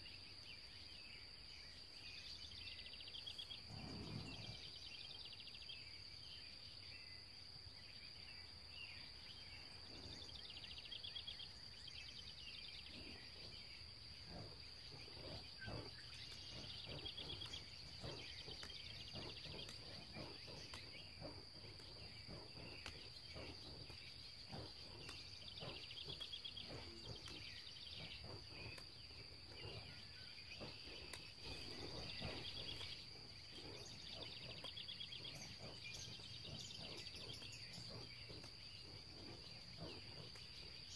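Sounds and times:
high-pitched insect trill: 0.0s - 40.9s
chirping: 14.3s - 29.9s, 30.5s - 40.9s.

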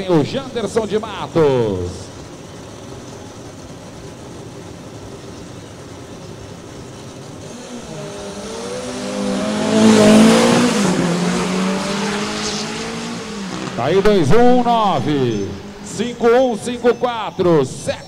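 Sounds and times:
drag racing engines revving: 0.0s - 18.0s.

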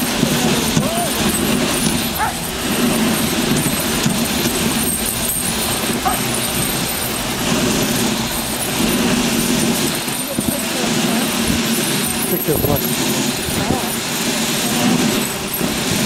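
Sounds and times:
sled jolting: 0.0s - 16.0s
sled runners scraping snow: 0.0s - 16.0s.

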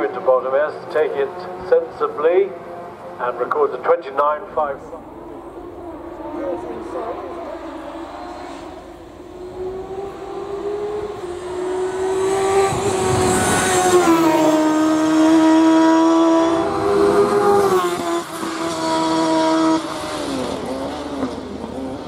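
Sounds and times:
race car engine at full throttle: 0.0s - 22.0s.

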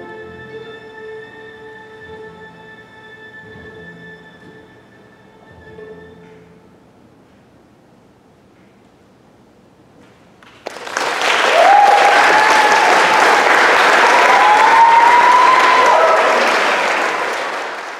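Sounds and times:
audience applause: 10.4s - 17.9s
voices cheering and whooping: 11.4s - 17.1s.

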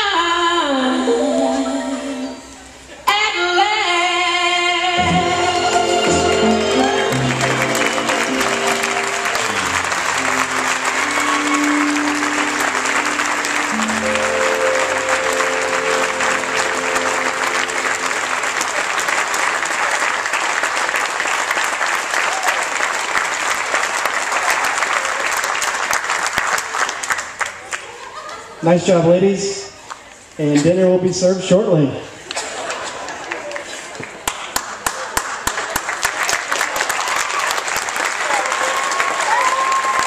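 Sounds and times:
dance song: 4.9s - 19.4s
audience applauding: 5.2s - 28.4s, 32.3s - 40.0s.

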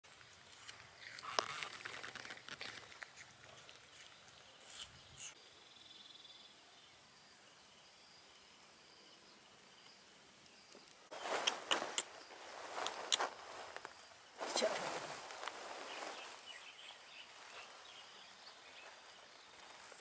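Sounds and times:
monkeys chewing with crackling clicks: 0.2s - 5.0s
faint high insect trill: 4.2s - 20.0s.

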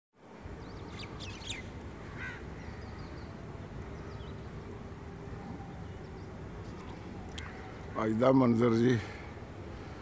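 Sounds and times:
small birds chirping: 0.6s - 10.0s
crows cawing: 2.0s - 3.1s, 7.3s - 8.1s.

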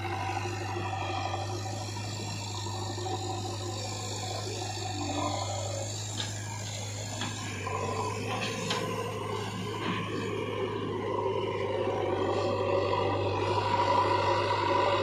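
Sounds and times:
diesel engine droning: 0.0s - 15.0s
sharp clicks from machine and soil: 6.1s - 7.6s, 8.3s - 9.1s.

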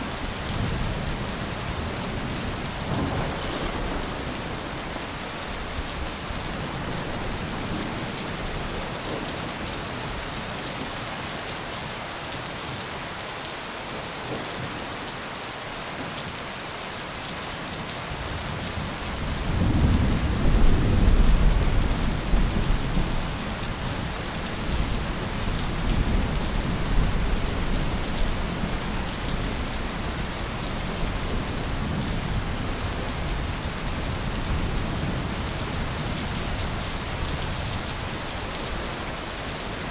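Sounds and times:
steady rain: 0.0s - 39.9s
thunder rumbling: 0.6s - 9.3s.

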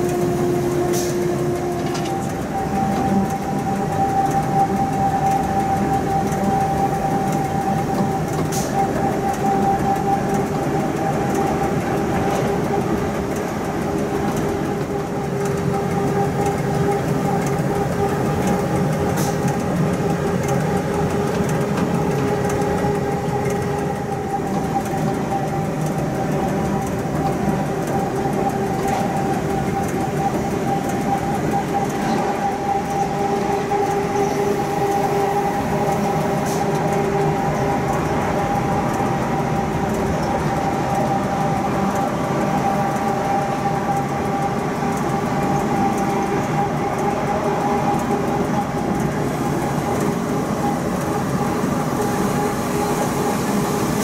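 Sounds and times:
train wheels on track: 0.0s - 54.0s
two-note locomotive hum: 0.0s - 54.0s.

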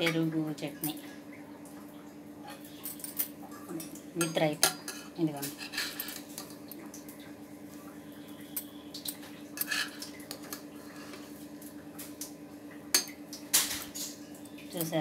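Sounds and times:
metal spoon scraping a pot: 4.6s - 6.3s, 9.6s - 10.1s.

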